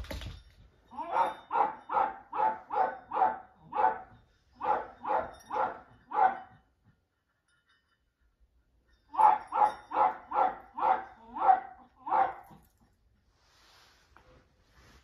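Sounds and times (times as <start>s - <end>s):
dog barking: 1.0s - 6.6s, 9.2s - 12.6s.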